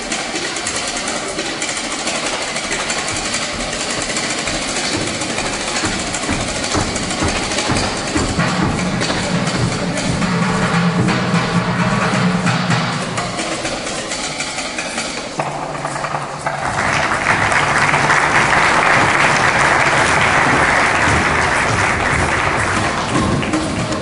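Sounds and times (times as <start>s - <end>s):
drumming on buckets and lids: 0.0s - 24.0s
audience applause: 16.4s - 24.0s.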